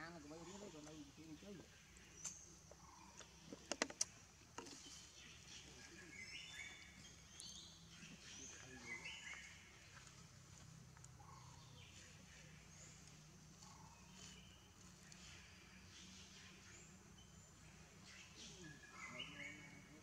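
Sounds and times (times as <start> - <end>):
faint bird chirps: 0.0 - 20.0
quiet forest ambience: 0.0 - 20.0.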